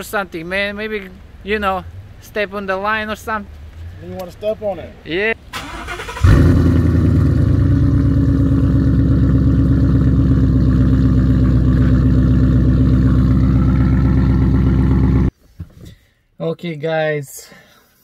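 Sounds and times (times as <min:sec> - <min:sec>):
loud car engine idling: 0:06.2 - 0:15.3.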